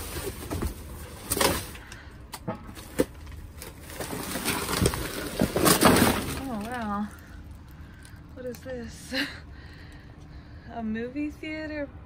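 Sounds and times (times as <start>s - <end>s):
plastic trash bags rustling: 0.0s - 2.0s, 2.7s - 8.5s.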